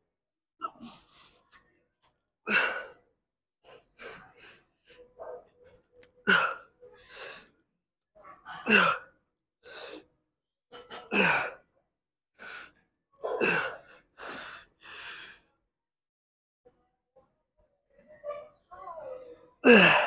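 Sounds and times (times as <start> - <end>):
man breathing hard: 13.4 - 15.5.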